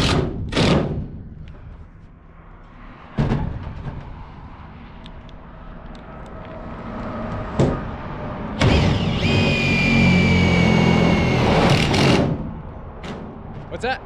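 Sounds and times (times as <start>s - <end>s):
cordless driver motor whine: 8.6s - 12.0s.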